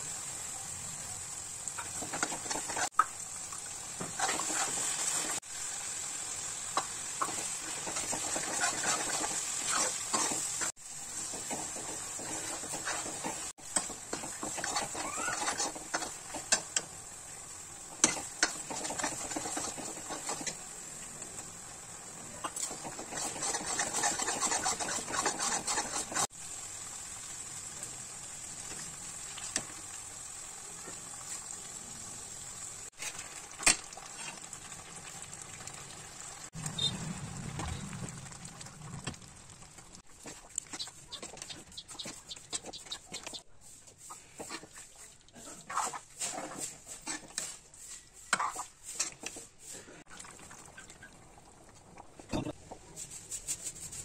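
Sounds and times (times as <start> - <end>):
steady sizzling: 0.0 - 51.0
spoon scraping metal pot: 7.8 - 10.7, 11.4 - 16.8, 18.0 - 20.6, 22.5 - 26.3.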